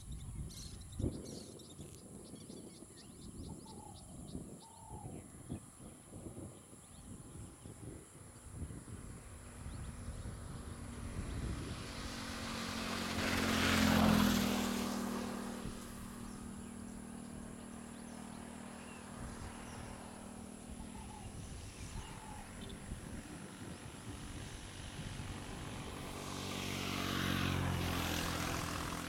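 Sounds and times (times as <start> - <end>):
motor engine passing by: 8.6 - 29.0.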